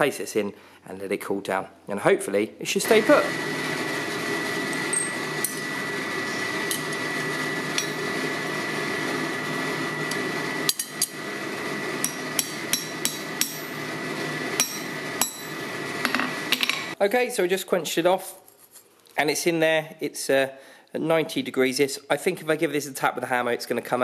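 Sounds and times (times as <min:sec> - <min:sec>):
machine hum with high whine: 0:02.7 - 0:17.0
hammer striking steel on anvil: 0:07.7 - 0:08.0, 0:10.7 - 0:11.2, 0:12.0 - 0:13.8, 0:14.6 - 0:16.9.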